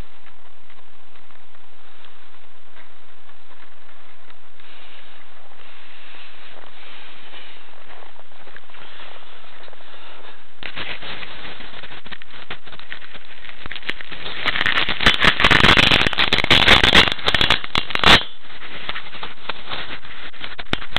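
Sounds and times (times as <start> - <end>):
skis scraping over snow: 0.0 - 16.1
loud crackling and rattling: 0.0 - 20.9.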